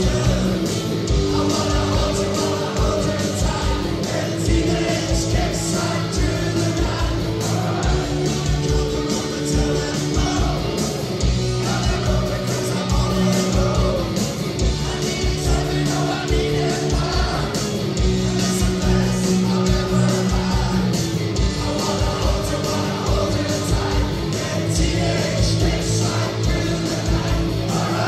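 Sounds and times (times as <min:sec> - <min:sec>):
bass guitar: 0:00.0 - 0:28.0
driving drum beat: 0:00.0 - 0:28.0
electric guitars: 0:00.0 - 0:28.0.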